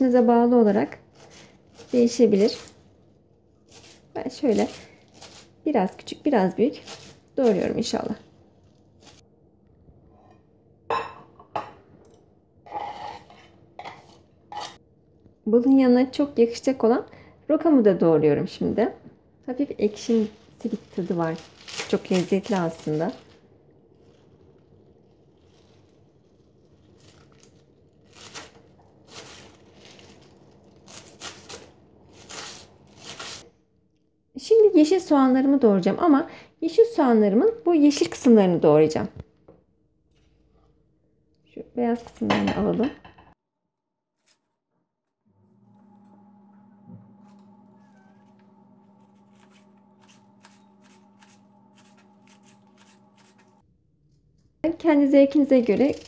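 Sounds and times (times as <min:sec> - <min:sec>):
low steady hum: 0:00.0 - 0:43.1, 0:45.3 - 0:56.0
knife chopping leaves on wooden board: 0:06.8 - 0:07.7, 0:30.8 - 0:33.4, 0:49.2 - 0:53.5.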